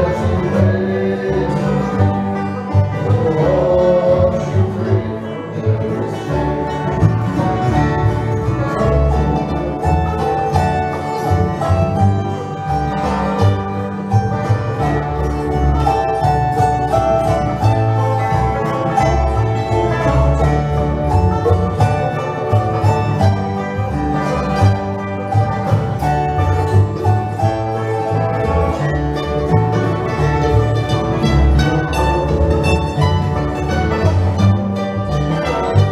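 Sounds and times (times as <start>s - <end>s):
acoustic guitar: 0.0s - 35.9s
fiddle: 0.0s - 35.9s
mandolin: 0.0s - 35.9s
upright bass line: 0.0s - 35.9s.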